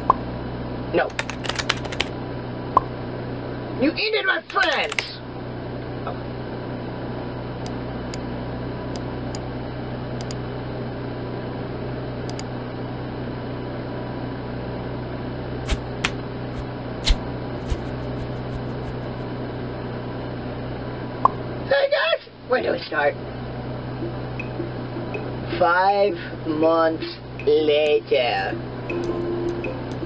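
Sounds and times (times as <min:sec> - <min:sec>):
electrical hum and hiss: 0:00.0 - 0:11.2, 0:15.5 - 0:30.0
sharp clicks: 0:01.1 - 0:02.1, 0:04.5 - 0:05.1, 0:15.7 - 0:19.2.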